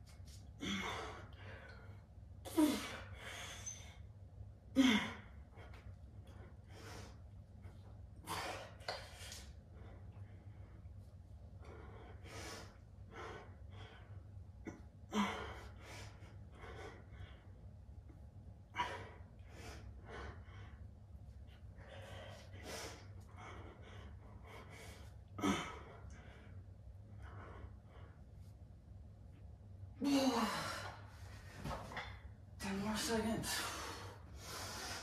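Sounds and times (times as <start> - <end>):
steady low hum: 0.0 - 35.0
man breathing hard: 33.5 - 35.0.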